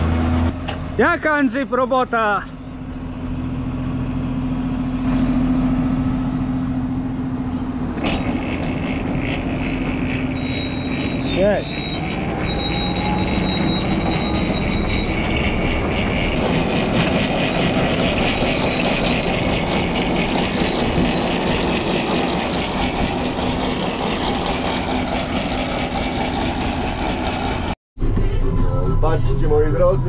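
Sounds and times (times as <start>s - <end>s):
heavy machinery engine running: 0.0s - 29.6s
high steady whining tones: 9.0s - 30.0s.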